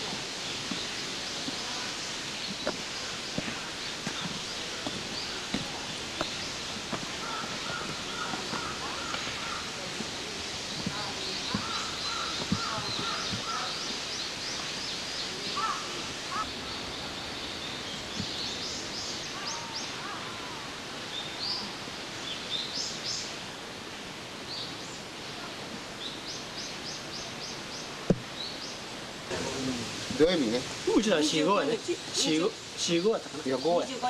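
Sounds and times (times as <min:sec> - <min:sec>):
birds calling: 0:00.0 - 0:23.4
woodland ambience hiss: 0:00.0 - 0:34.0.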